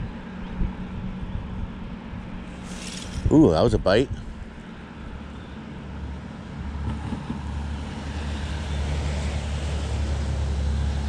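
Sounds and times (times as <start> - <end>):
wind buffeting microphone: 0.0 - 4.6.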